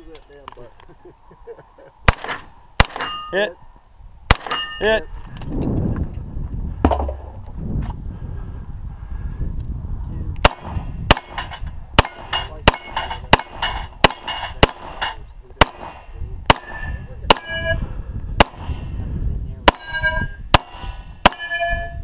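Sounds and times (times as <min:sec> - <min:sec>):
pistol shots: 0:02.1 - 0:03.2, 0:04.3 - 0:04.7, 0:10.4 - 0:17.6, 0:18.4 - 0:18.9, 0:20.6 - 0:21.5
steel plate clanging: 0:02.8 - 0:03.5, 0:04.5 - 0:05.0, 0:10.5 - 0:15.2, 0:16.0 - 0:17.8, 0:19.7 - 0:20.4, 0:21.3 - 0:22.0.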